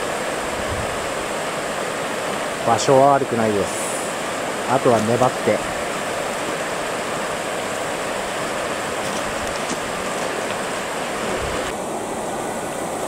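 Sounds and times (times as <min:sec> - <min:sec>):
river rapids rushing: 0:00.0 - 0:13.0.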